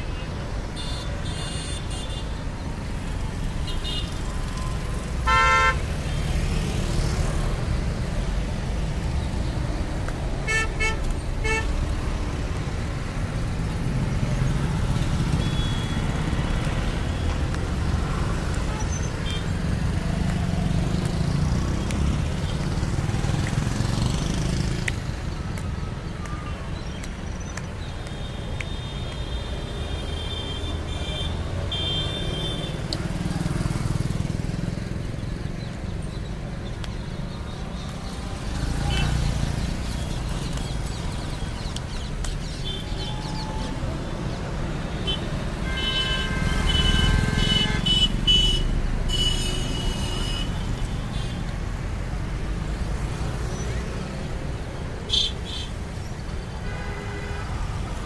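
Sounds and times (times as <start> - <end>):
road traffic rumble: 0.0 - 58.0
loud horn honk: 5.2 - 5.8, 45.0 - 50.5.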